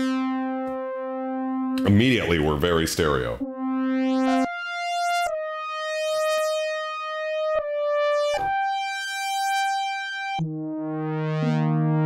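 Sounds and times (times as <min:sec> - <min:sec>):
synthesizer held notes: 0:00.0 - 0:08.7.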